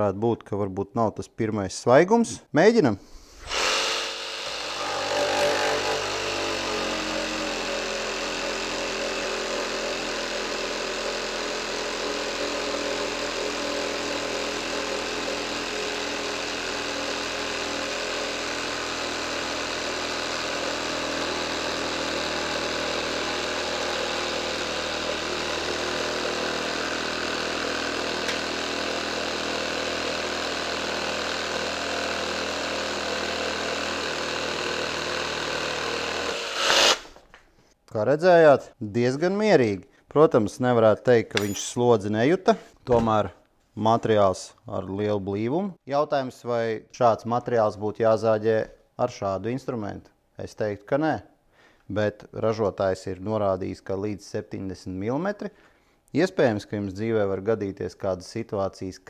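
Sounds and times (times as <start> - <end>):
jigsaw sawing through wood: 3.4 - 37.2.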